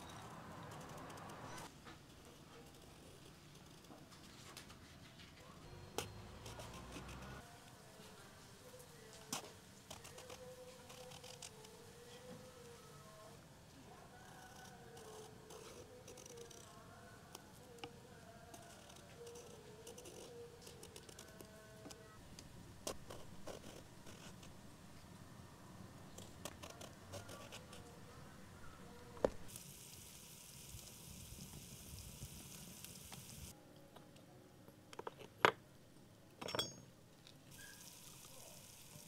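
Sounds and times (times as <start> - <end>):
onions sizzling in hot oil: 29.5 - 33.5, 37.5 - 39.0.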